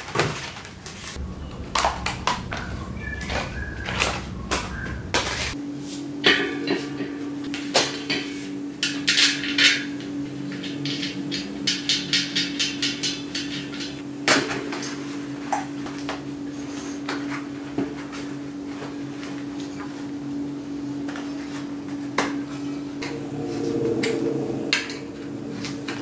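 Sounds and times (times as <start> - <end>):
steady low hum: 0.0 - 6.2, 20.1 - 26.0.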